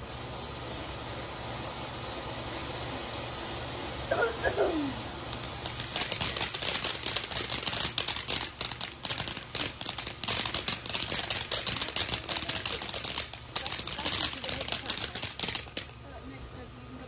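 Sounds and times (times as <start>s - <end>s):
firework crackling pops: 5.1s - 16.1s.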